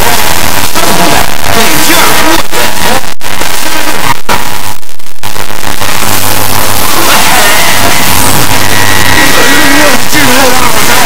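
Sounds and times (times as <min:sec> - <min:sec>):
garbled television audio with music: 0:00.0 - 0:11.0
heavy static: 0:00.0 - 0:11.0.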